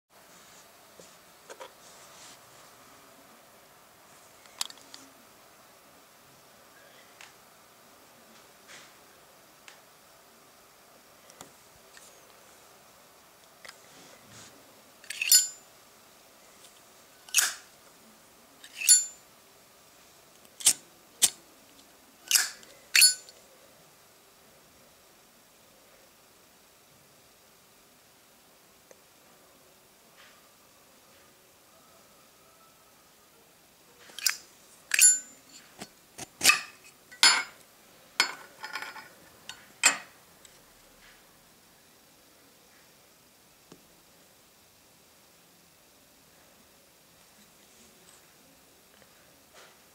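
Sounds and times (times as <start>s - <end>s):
high metallic ping: 18.8s - 19.2s, 22.3s - 23.3s, 34.9s - 35.4s.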